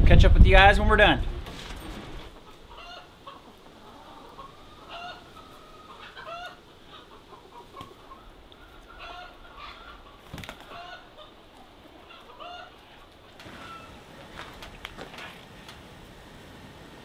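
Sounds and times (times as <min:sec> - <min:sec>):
hens clucking softly: 0:02.3 - 0:15.8.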